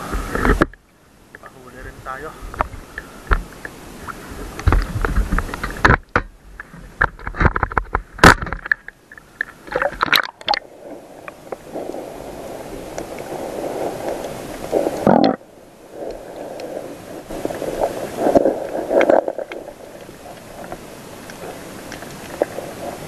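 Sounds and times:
water splashing against camera: 2.4 - 23.0
muffled underwater rush: 8.0 - 23.0.

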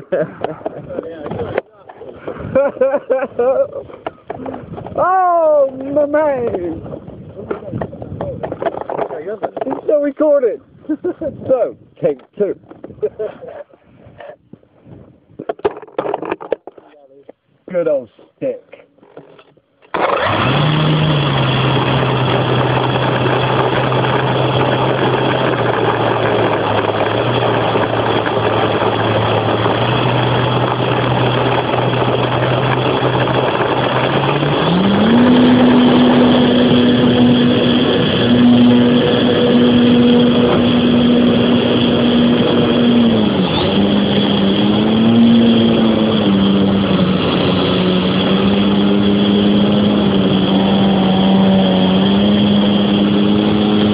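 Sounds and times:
model plane electric motor humming: 19.9 - 53.9.

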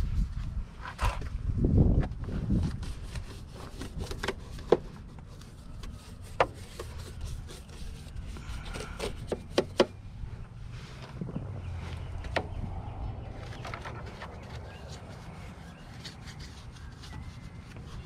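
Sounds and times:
brush scrubbing plastic: 2.8 - 9.3.

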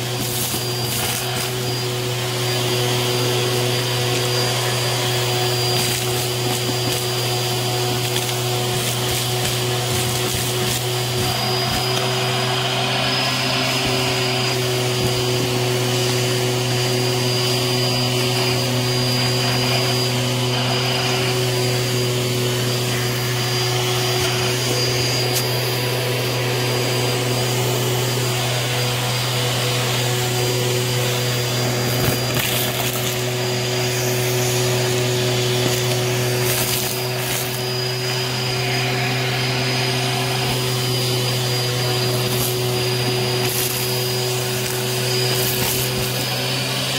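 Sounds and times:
vacuum cleaner whining: 0.0 - 46.9
debris crackling in vacuum: 31.4 - 33.4, 35.4 - 38.1.

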